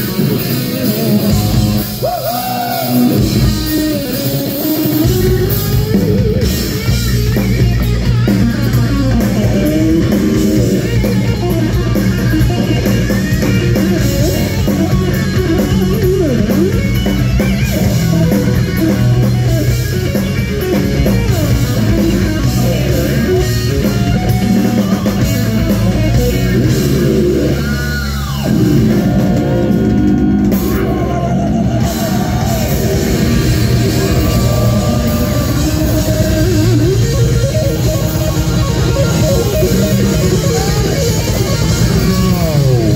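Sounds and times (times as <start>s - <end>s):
electric guitar: 0.0s - 42.9s
hard rock band playing: 0.0s - 42.9s.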